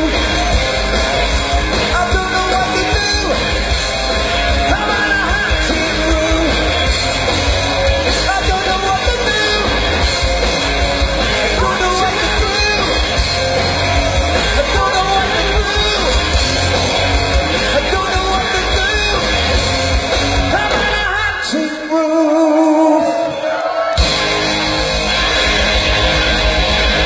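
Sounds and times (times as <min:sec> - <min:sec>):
lead singer singing: 0:00.0 - 0:03.6, 0:04.5 - 0:07.0, 0:08.1 - 0:09.9, 0:11.2 - 0:16.4, 0:17.6 - 0:19.6, 0:20.4 - 0:24.0
live rock band playing: 0:00.0 - 0:27.0.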